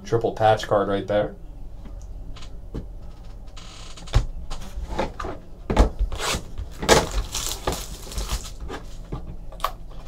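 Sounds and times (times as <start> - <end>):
knocks and rustles of card boxes: 4.1 - 9.4.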